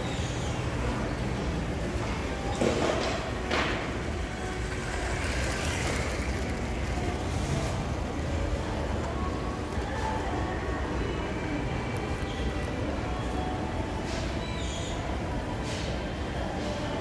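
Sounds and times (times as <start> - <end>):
shopping centre hubbub: 0.0 - 17.0
toy train running on plastic track: 3.8 - 9.8.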